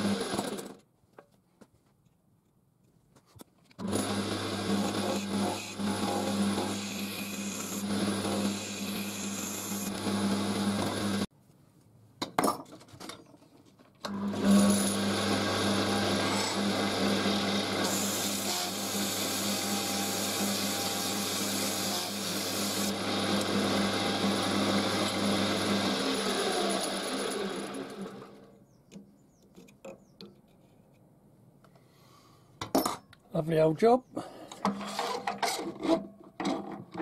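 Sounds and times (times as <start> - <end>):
chisel cutting wood: 3.8 - 11.3, 14.1 - 28.0
wood lathe motor hum: 3.8 - 11.3, 14.1 - 28.5
sandpaper sanding spinning wood: 4.6 - 11.3, 14.4 - 27.2.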